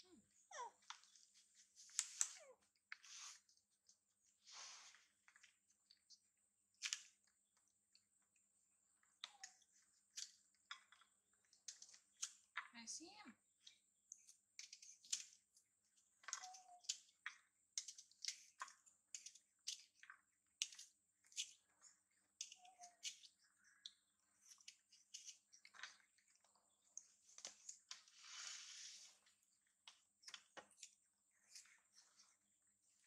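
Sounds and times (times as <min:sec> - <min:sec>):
rustling hiss: 0:28.1 - 0:29.2.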